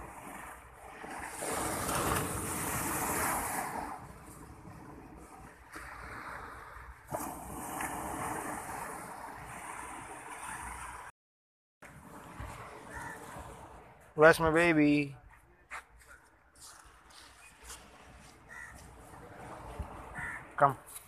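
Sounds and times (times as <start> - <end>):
surf breaking on shore: 0.0 - 11.1.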